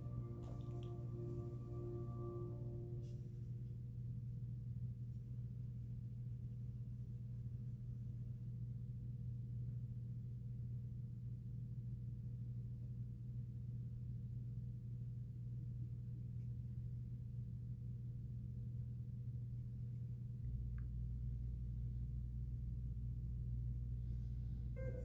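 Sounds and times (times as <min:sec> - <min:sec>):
faint high tone: 0:00.0 - 0:03.3, 0:24.8 - 0:25.0
steady low hum: 0:00.0 - 0:25.0.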